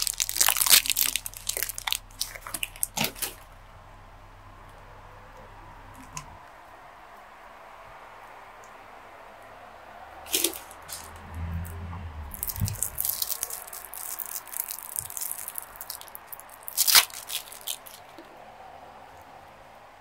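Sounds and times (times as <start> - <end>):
plastic wrapper crinkling: 0.0 - 3.4, 10.3 - 11.2, 12.3 - 18.3.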